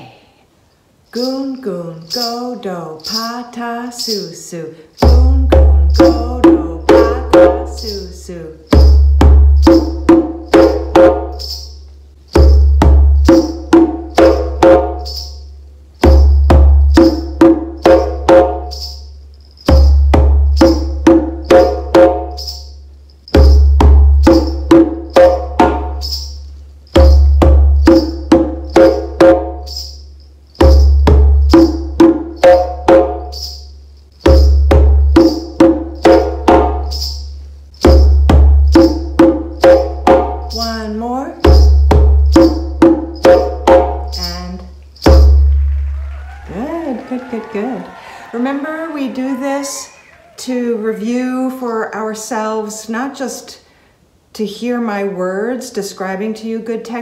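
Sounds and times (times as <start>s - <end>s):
djembe played with hands: 5.0s - 7.8s, 8.7s - 11.6s, 12.3s - 15.3s, 16.0s - 18.9s, 19.6s - 22.6s, 23.3s - 29.9s, 30.6s - 33.6s, 34.2s - 40.6s, 41.4s - 44.4s, 45.0s - 48.2s
beaded ankle bands rattling: 7.0s - 46.0s.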